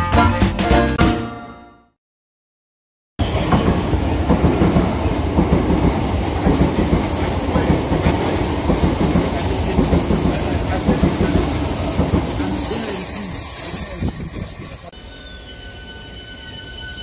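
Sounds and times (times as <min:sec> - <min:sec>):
train wheels clattering on rail joints: 0:03.5 - 0:13.0
high hiss: 0:05.8 - 0:14.9.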